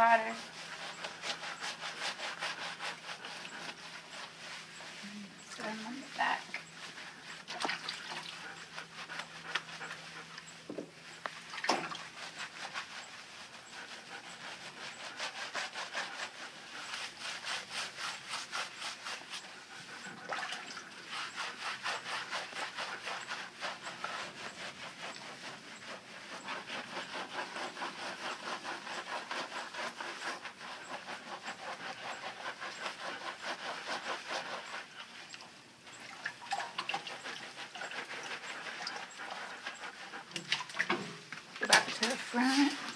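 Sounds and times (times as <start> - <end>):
dog panting: 0.0 - 42.9
hands scrubbing soapy fur: 0.0 - 42.9.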